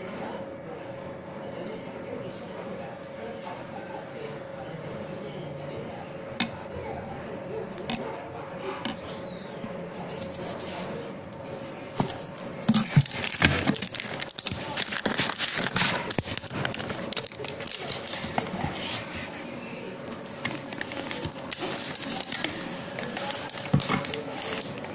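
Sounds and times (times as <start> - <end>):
packaging crinkling and rustling: 11.9 - 19.3, 20.1 - 24.9.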